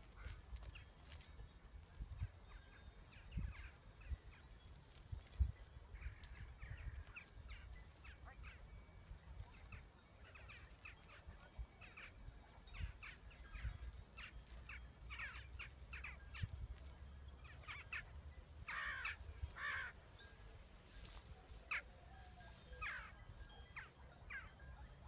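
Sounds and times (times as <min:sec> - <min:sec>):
birds chirping: 0:05.9 - 0:20.5, 0:21.1 - 0:25.0.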